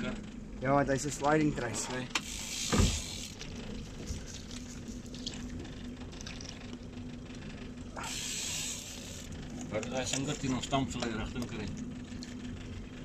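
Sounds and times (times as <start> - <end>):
boat noise on water: 0.0 - 13.0
faint steady hum: 0.0 - 13.0
faint water sounds: 0.7 - 12.4
thump: 2.7 - 3.0.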